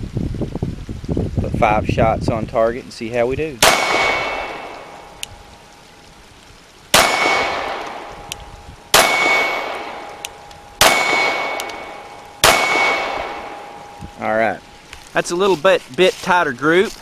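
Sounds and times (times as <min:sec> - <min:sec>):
steel target ringing: 0:03.6 - 0:05.0, 0:08.9 - 0:14.7
pistol shots: 0:03.6 - 0:05.2, 0:06.9 - 0:14.0.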